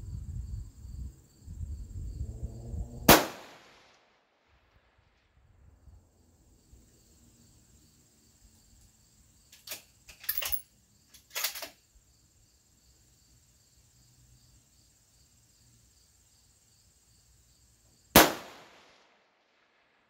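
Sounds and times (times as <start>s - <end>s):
insects chirping: 0.0s - 3.0s, 5.6s - 18.7s
rifle shot: 3.1s - 4.0s, 18.2s - 19.9s.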